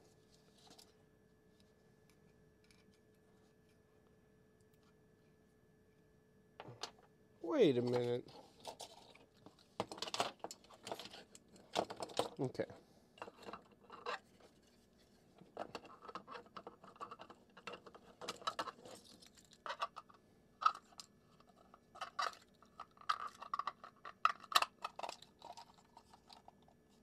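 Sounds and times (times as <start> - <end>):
plastic parts clicking and scraping: 7.8 - 12.5, 13.2 - 14.7, 15.4 - 26.8.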